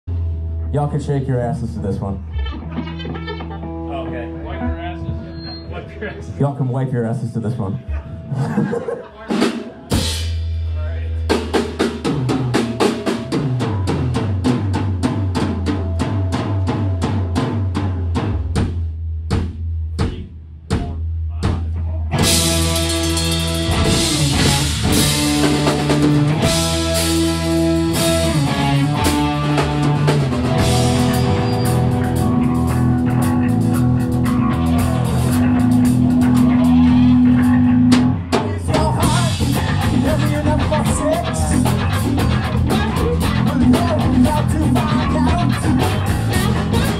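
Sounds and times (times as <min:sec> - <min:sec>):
electric guitar chords: 0:00.1 - 0:18.6, 0:22.1 - 0:46.9
drum beat: 0:09.3 - 0:46.9
low bass note: 0:22.2 - 0:38.2.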